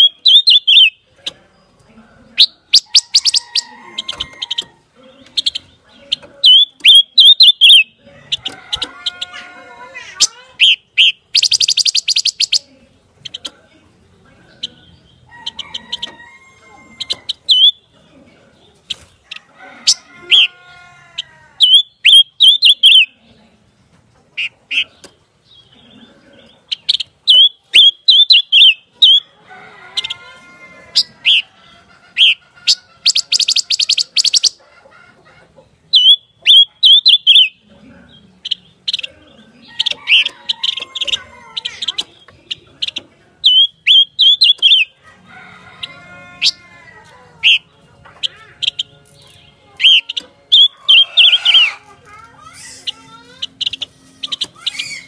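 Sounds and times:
bird drawn-out arching calls: 30.9 - 31.5, 32.1 - 34.6, 35.9 - 37.6, 43.4 - 45.0, 45.7 - 48.9, 49.8 - 51.8.

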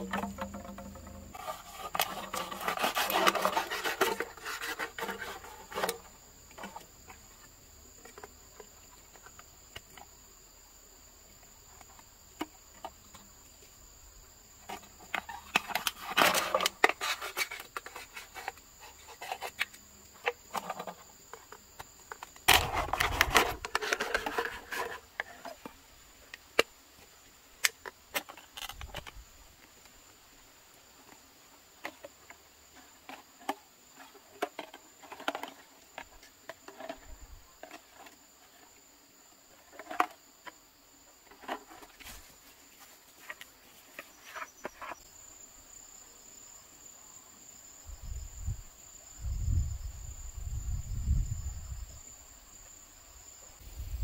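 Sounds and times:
knife cutting plastic bottles: 0.0 - 6.1, 22.5 - 25.5
insects calling: 0.0 - 54.0.

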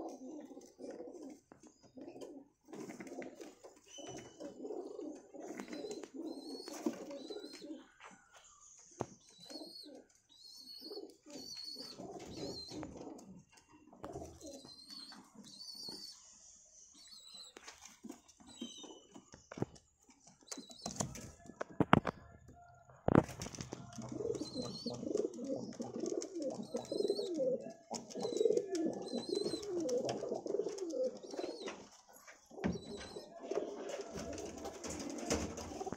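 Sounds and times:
pigeons cooing: 0.0 - 8.0, 9.2 - 16.2, 23.6 - 35.9.

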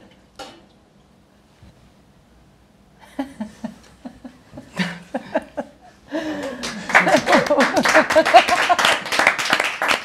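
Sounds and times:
people laughing: 3.0 - 9.2.

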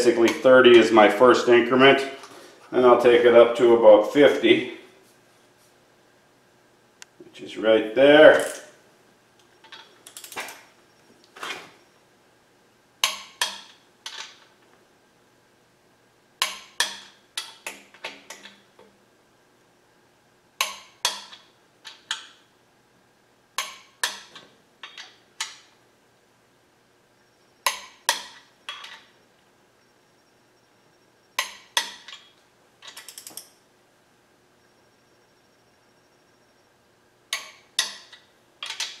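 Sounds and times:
torque wrench ratcheting: 31.4 - 33.5
torque wrench clicking: 31.4 - 33.6.

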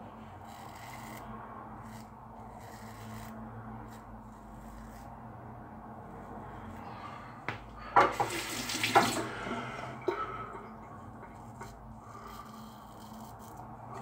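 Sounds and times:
razor scraping stubble: 0.4 - 5.2, 11.6 - 14.0
water tap running into sink: 8.0 - 9.3.

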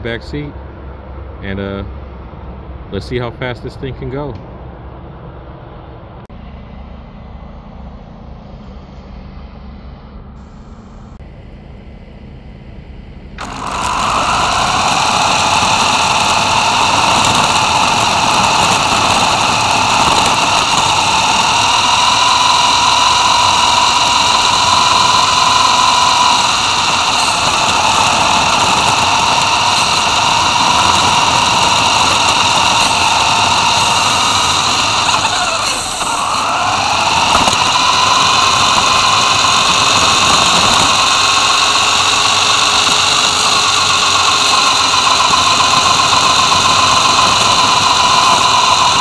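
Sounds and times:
toy car electric motor whining: 13.4 - 49.0.

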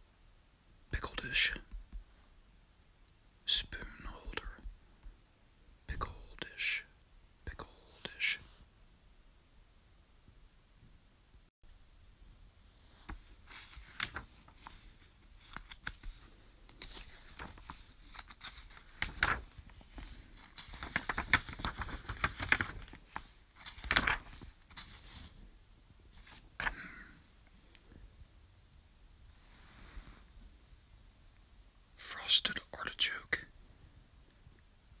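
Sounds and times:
glossy book pages turning: 13.0 - 25.3.

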